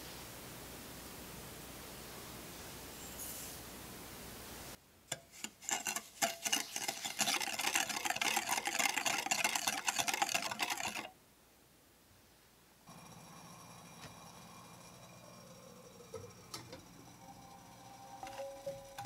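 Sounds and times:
whisk beating in glass bowl: 0:05.2 - 0:11.1, 0:12.9 - 0:19.0.

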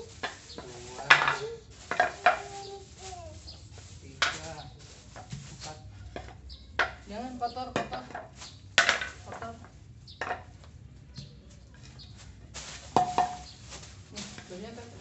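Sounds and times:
plastic bags rustling and crinkling: 0:00.0 - 0:09.8, 0:11.8 - 0:15.0
sharp crackles and knocks: 0:00.0 - 0:15.0
child's voice: 0:01.3 - 0:03.6.

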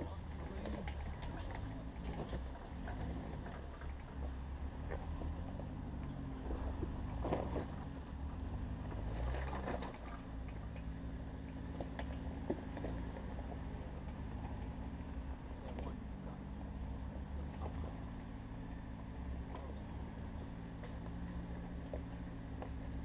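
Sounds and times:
engine running at low revs: 0:00.0 - 0:23.0.

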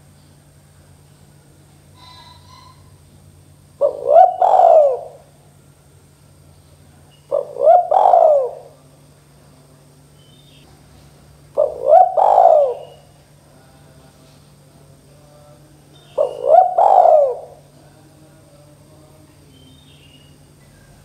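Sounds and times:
dove cooing: 0:01.9 - 0:03.0, 0:03.7 - 0:05.4, 0:07.2 - 0:08.9, 0:11.5 - 0:13.2, 0:16.0 - 0:17.8.

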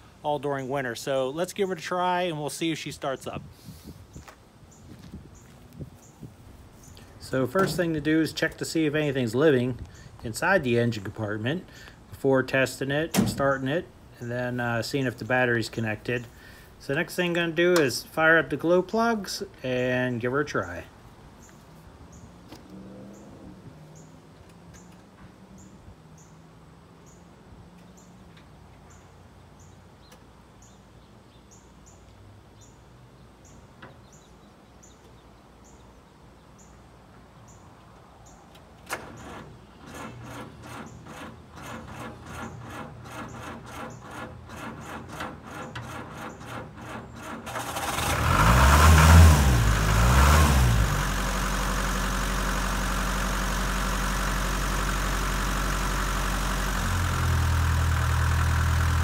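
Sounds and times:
diesel engine revving and idling: 0:22.6 - 0:24.1, 0:39.1 - 0:59.0
starter motor cranking: 0:38.9 - 0:59.0.

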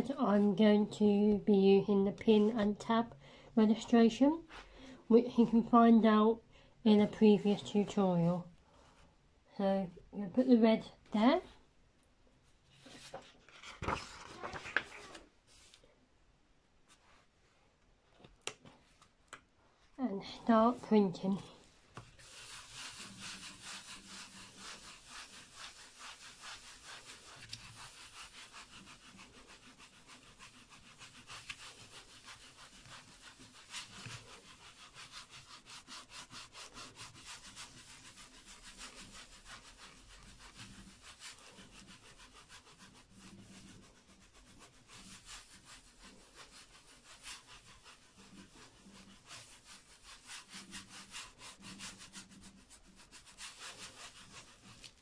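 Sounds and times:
baren rubbing on paper: 0:20.5 - 0:55.0.

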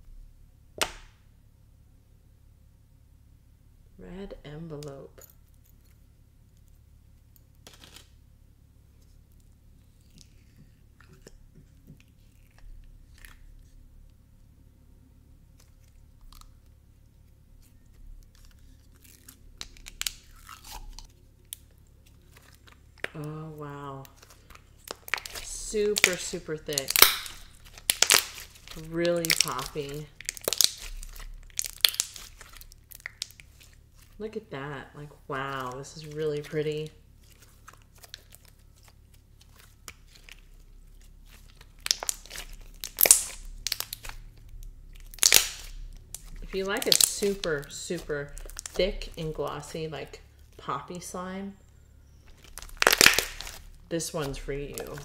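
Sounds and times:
slime snapping: 0:19.6 - 0:21.6, 0:24.1 - 0:34.1, 0:41.3 - 0:44.3, 0:44.9 - 0:49.2, 0:52.3 - 0:55.0
sticky slime clicks and pops: 0:24.9 - 0:33.4, 0:41.7 - 0:44.2, 0:45.0 - 0:47.4, 0:52.4 - 0:53.6.

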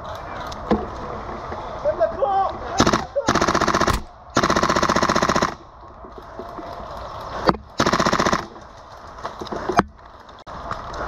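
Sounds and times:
airsoft gun full-auto bursts: 0:02.8 - 0:05.6, 0:07.8 - 0:08.5.

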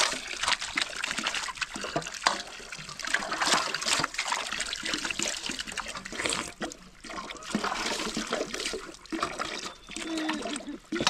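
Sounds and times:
water splashing and trickling: 0:00.0 - 0:11.0.

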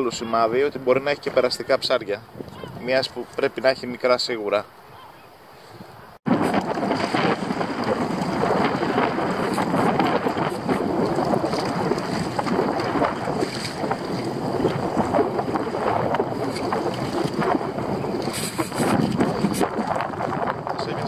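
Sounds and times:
wind buffeting microphone: 0:00.0 - 0:04.0, 0:04.8 - 0:21.0
sea splashing against boat: 0:06.3 - 0:21.0.

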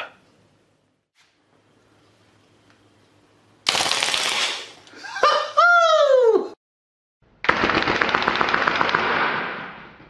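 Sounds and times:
airsoft pistol firing bursts: 0:07.5 - 0:09.8.

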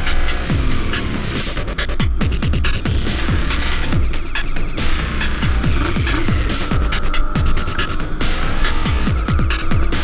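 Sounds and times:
electronic techno music: 0:00.0 - 0:10.0
deep kick drum beat: 0:02.0 - 0:07.9, 0:08.8 - 0:10.0.

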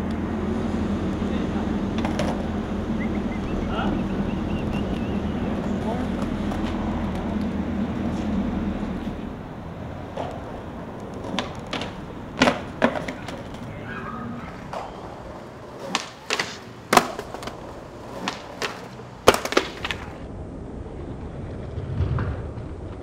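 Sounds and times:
skateboard clacking on stone: 0:02.0 - 0:02.5, 0:10.1 - 0:13.7, 0:14.5 - 0:20.2
skateboard clattering down stairs: 0:10.1 - 0:13.7, 0:14.5 - 0:20.2.

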